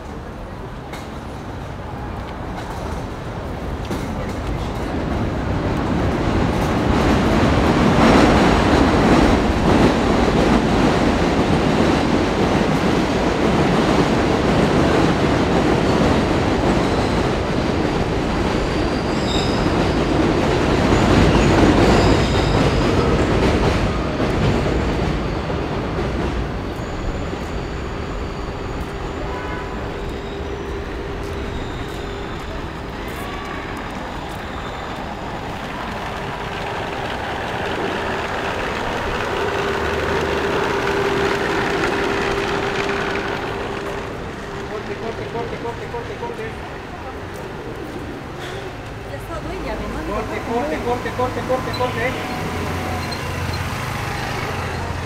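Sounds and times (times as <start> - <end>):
elevated train rumble and rail clatter: 0.0 - 55.0
high wheel squeals: 15.7 - 47.1, 48.2 - 55.0.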